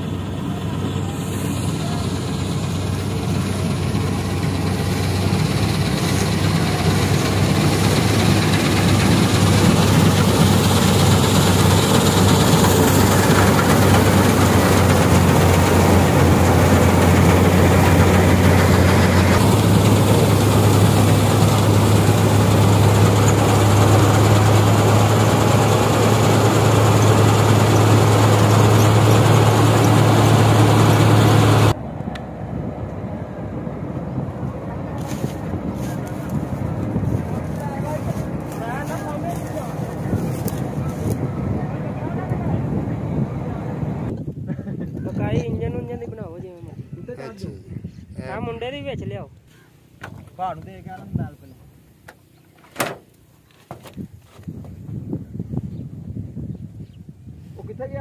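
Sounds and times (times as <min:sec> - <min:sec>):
combine harvester engine drone: 0:00.0 - 0:44.2
mechanical rush of threshing gear: 0:01.3 - 0:31.8.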